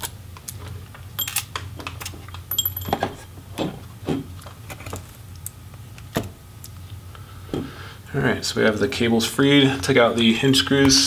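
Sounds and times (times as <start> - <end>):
ringing metallic clink: 1.2 - 1.4, 2.5 - 3.1.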